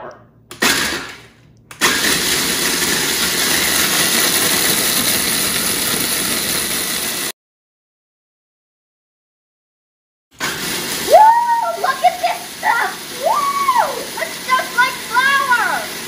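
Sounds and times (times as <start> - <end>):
food processor grinding: 0.5 - 7.3, 10.4 - 16.0.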